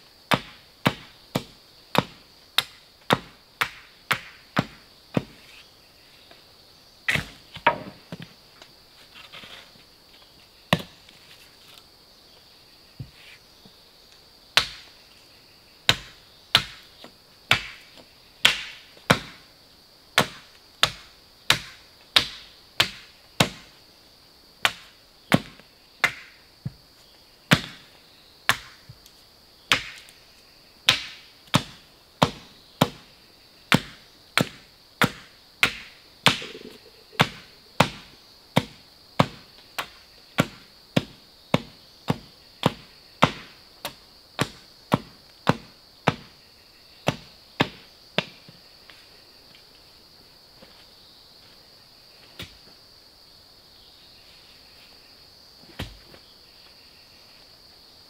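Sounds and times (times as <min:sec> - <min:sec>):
high insect drone: 0:00.0 - 0:58.0
blade chopping into wood: 0:00.3 - 0:05.4, 0:07.1 - 0:08.2, 0:20.2 - 0:23.6, 0:33.7 - 0:46.3.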